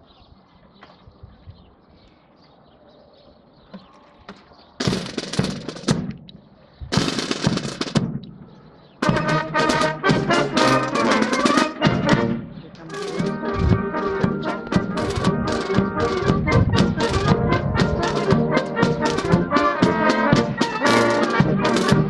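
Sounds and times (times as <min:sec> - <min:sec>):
brass band playing a march: 0:09.0 - 0:22.0.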